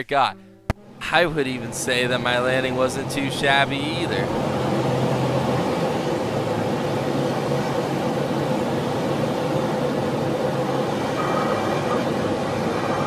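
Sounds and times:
propeller plane engine drone: 0.6s - 13.0s
rushing air noise: 0.9s - 13.0s.

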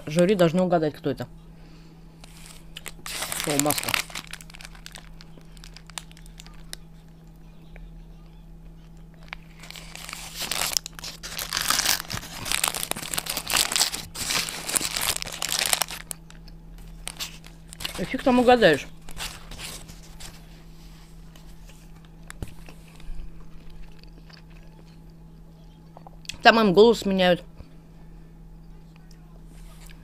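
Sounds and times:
paper wrapper crinkling: 2.2s - 6.9s, 9.2s - 24.1s.

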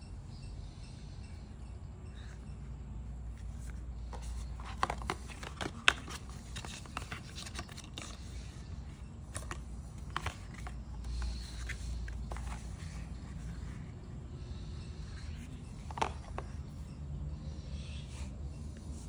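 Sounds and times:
paper and cardboard rustling: 3.3s - 13.9s, 15.1s - 16.8s.

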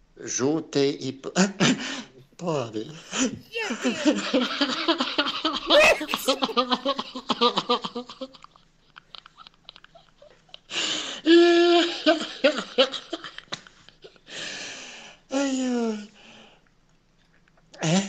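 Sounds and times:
men laughing hard: 3.7s - 7.8s.

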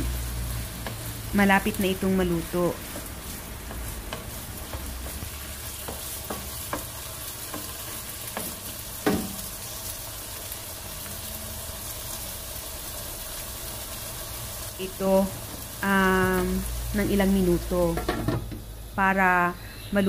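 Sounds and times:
wooden spoon stirring: 0.0s - 9.6s
food sizzling in a wok: 0.0s - 20.0s.

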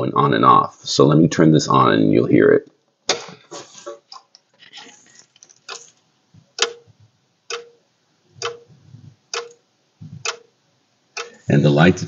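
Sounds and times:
wall switch relay clicking: 6.5s - 7.8s, 8.4s - 9.6s, 10.2s - 10.5s, 11.1s - 11.5s.

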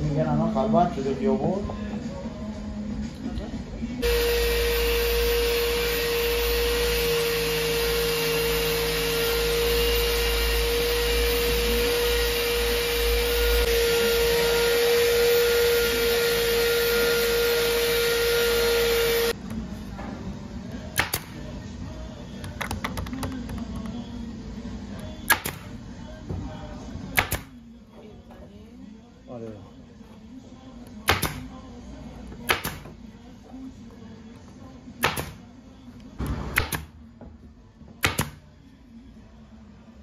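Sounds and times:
brad nailer shots into wood: 21.0s - 21.4s, 25.3s - 25.7s, 27.2s - 27.5s, 31.1s - 31.5s, 32.5s - 32.9s, 35.0s - 35.4s, 36.2s - 36.9s, 38.0s - 38.4s.

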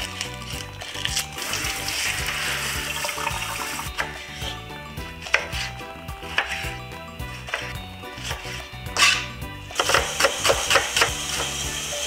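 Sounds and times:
sink sprayer water spraying: 0.0s - 6.8s, 7.4s - 12.0s
background music: 0.0s - 12.0s
knife chopping on wooden board: 5.3s - 6.7s, 7.5s - 11.5s.

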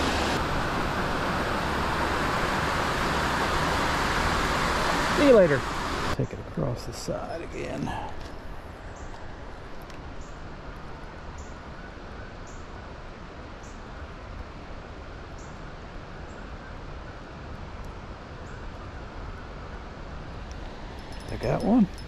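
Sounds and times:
river rushing: 0.0s - 6.2s.

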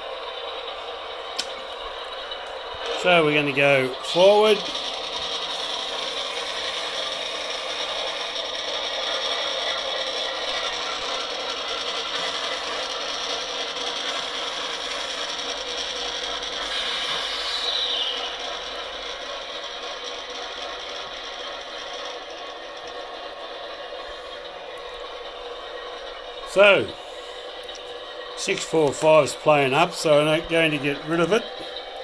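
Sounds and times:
model train motors whirring: 0.0s - 32.0s
short falling whine: 12.4s - 21.8s.

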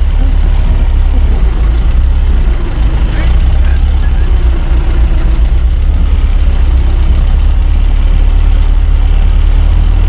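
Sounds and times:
old car engine rumbling: 0.0s - 10.0s.

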